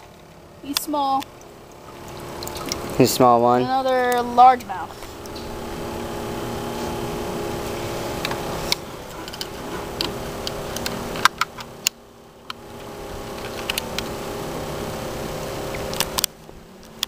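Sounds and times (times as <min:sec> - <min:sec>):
steady multi-pitched hum: 0:00.0 - 0:17.0.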